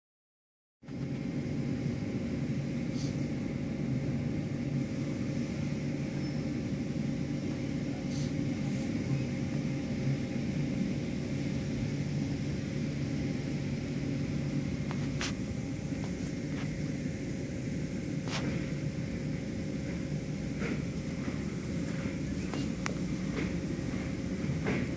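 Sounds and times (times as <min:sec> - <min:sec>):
car wash machinery rumbling: 0:01.0 - 0:24.9.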